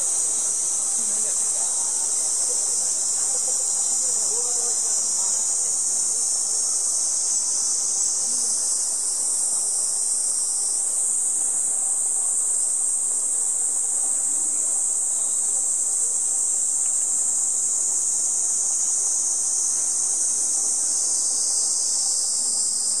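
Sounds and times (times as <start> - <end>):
cicadas singing: 0.0 - 23.0.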